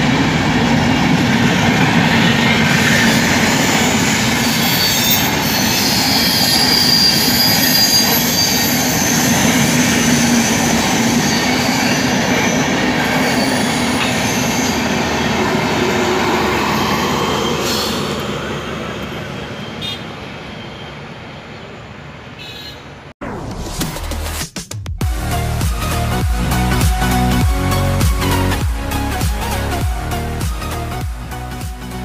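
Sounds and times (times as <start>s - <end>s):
train wheels rumbling on rails: 0.0s - 20.6s
thin high squeal: 3.7s - 10.6s.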